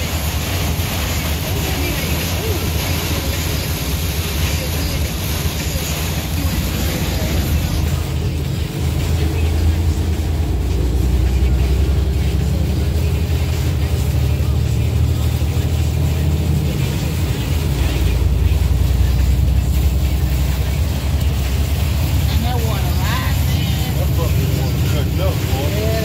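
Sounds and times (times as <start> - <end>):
rain and spray hiss: 0.0 - 26.0
vehicle engine rumble: 0.0 - 26.0
wet tyre road noise: 0.0 - 26.0.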